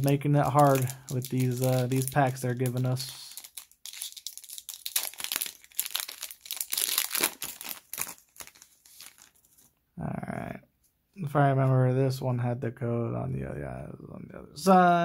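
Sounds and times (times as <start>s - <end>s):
foil wrapper tearing and crinkling: 0.0s - 9.7s.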